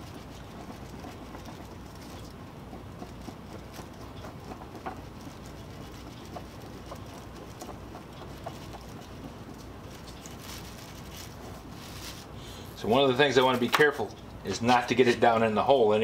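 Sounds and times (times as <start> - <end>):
epoxy stirring scrape: 0.0 - 12.4
steady low hum: 0.0 - 16.0.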